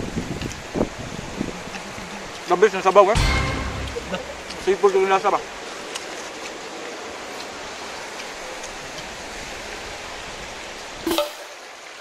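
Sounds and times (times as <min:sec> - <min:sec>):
brief sharp sound: 0:03.2 - 0:04.6.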